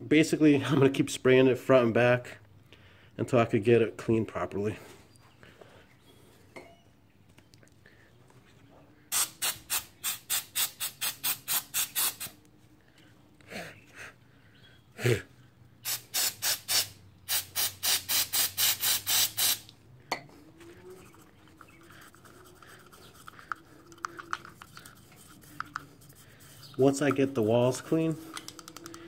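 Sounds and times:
aerosol can spraying: 9.1 - 12.4, 15.8 - 19.7
toothbrush scrubbing: 20.8 - 28.6.

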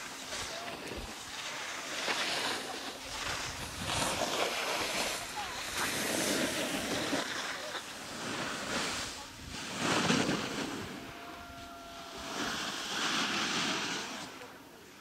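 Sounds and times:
wind buffeting microphone: 3.0 - 7.1.

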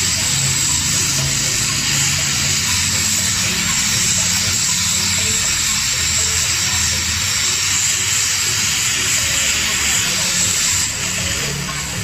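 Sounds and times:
gas torch hissing: 0.0 - 12.0.

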